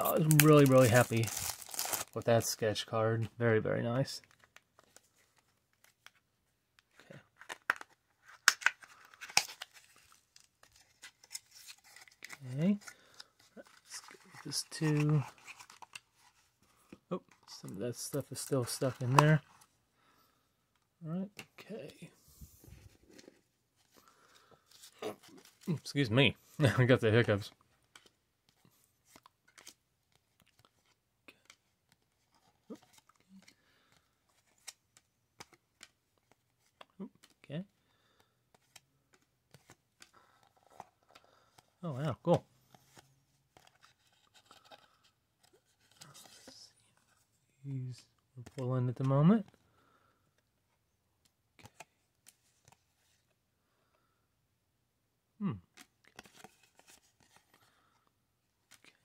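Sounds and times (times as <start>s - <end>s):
cardboard box tearing and crinkling: 0.2s - 2.2s.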